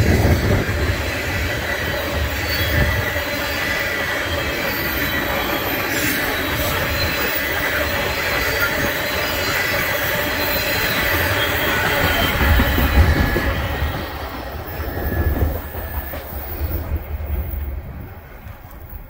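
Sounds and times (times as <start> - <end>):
high wheel squeal: 0.0 - 18.0
train wheels rumbling on rails: 0.0 - 19.0.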